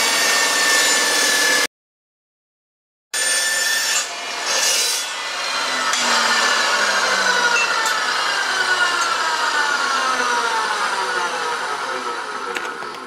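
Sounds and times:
metal saw cutting aluminium: 0.0s - 1.7s, 3.2s - 13.0s
saw motor spinning down whine: 4.3s - 13.0s.

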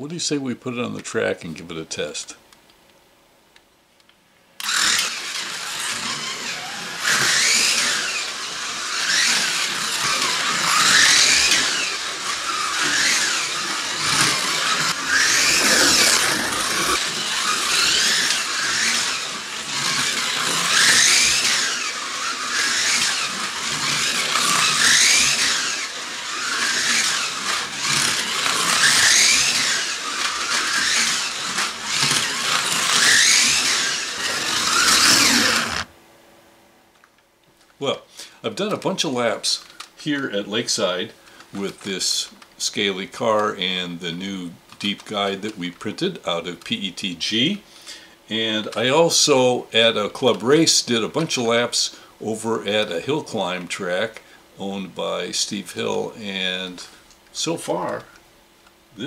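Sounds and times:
slot car motor whining: 4.6s - 35.9s.

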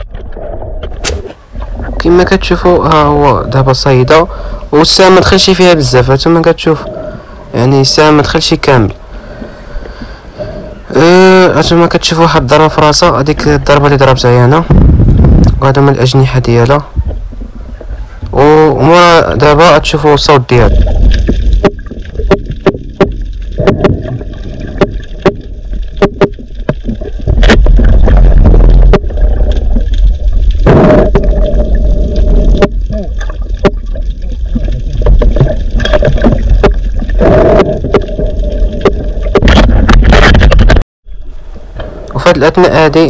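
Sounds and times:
fish croaking calls: 9.1s - 11.1s
low handling rumble: 20.5s - 42.2s
fish knocking calls: 21.2s - 27.6s.

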